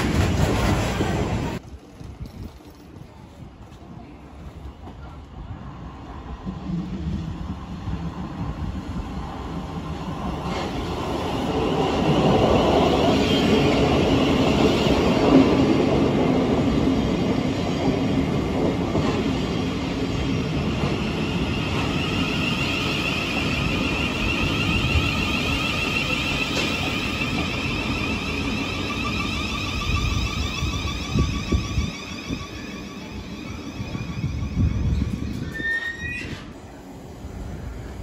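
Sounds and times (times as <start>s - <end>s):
train wheels rumbling on rails: 0.0s - 38.0s
high wavering squeal: 21.9s - 36.4s.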